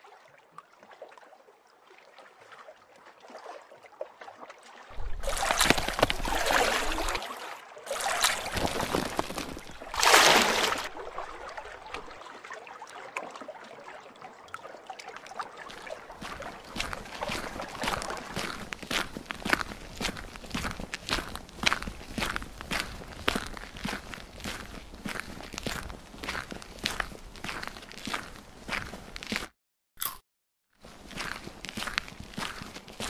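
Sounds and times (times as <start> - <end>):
water sloshing and splashing: 0.0 - 29.5
water trickling: 4.9 - 18.6.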